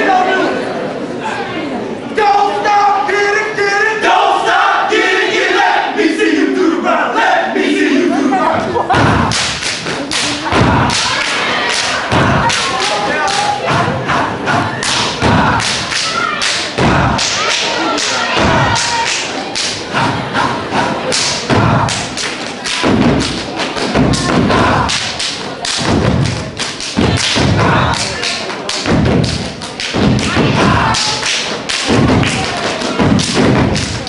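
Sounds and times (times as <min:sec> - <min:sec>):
rhythmic stomps on stage floor: 0:08.9 - 0:11.2, 0:11.9 - 0:16.0, 0:16.7 - 0:17.4, 0:18.3 - 0:19.0, 0:19.6 - 0:34.0
voices shouting: 0:10.2 - 0:22.2, 0:30.1 - 0:31.3.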